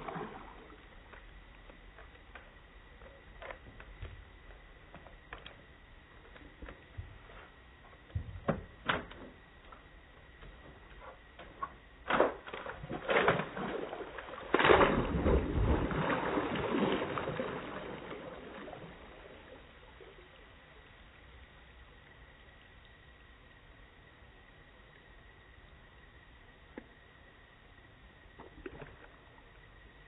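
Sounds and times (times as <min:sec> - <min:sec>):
dog splashing in water: 0:12.1 - 0:19.1.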